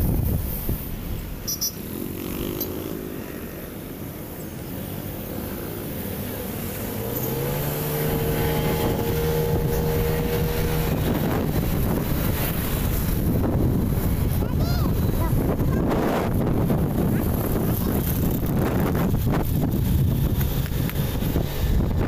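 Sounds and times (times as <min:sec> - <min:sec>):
engine hum: 0:00.0 - 0:22.0
road and wind noise: 0:00.0 - 0:22.0.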